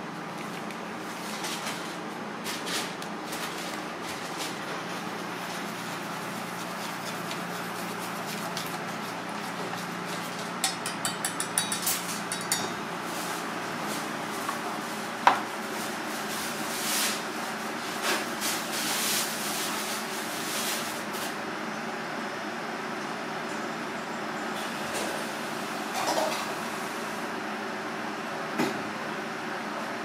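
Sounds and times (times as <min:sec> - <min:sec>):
kitchen hum: 0:00.0 - 0:22.2, 0:24.2 - 0:29.5
whisk beating batter in bowl: 0:05.3 - 0:11.8
whisk clicking against metal bowl: 0:10.6 - 0:12.7.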